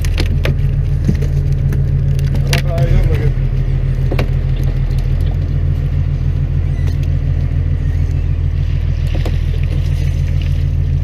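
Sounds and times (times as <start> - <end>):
boat engine humming: 0.0 - 11.0
water splashing: 0.0 - 11.0.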